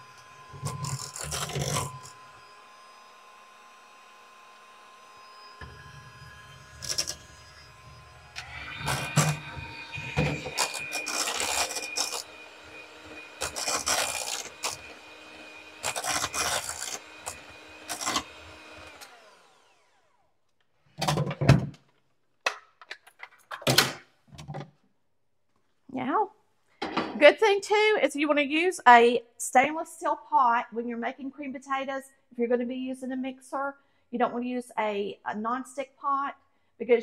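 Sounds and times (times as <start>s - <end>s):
electric hand mixer running: 0.0s - 20.3s.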